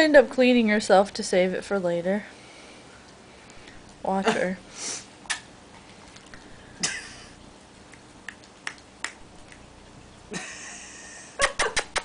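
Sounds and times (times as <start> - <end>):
dog hissing breath: 4.7 - 5.1.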